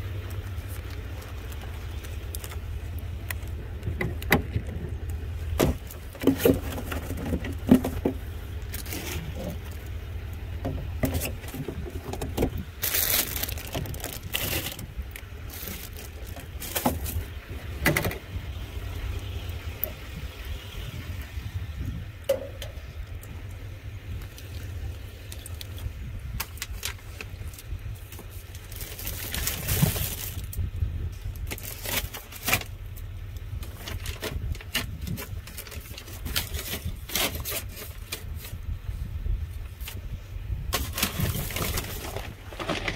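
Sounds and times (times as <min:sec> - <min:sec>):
rustling: 0:00.0 - 0:17.7, 0:39.6 - 0:42.9
steady low rumble: 0:00.0 - 0:42.9
knocks clanks and scrapes: 0:05.6 - 0:09.8, 0:10.6 - 0:12.6, 0:40.7 - 0:42.9.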